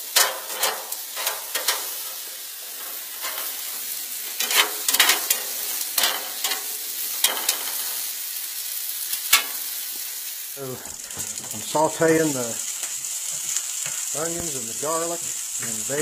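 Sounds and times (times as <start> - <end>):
metal tongs scraping a wok: 0.0 - 8.1, 12.6 - 14.2
vegetables sizzling in a wok: 0.0 - 16.0.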